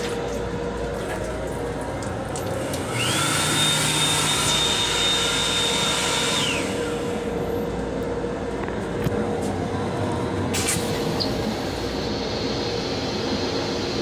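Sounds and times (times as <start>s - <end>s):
hand dryer motor whine: 2.0s - 7.5s.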